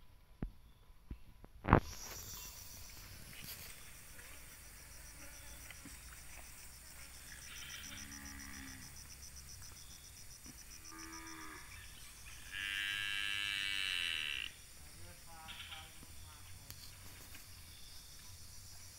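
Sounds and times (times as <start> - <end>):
cattle mooing: 7.6 - 8.9, 12.5 - 14.5.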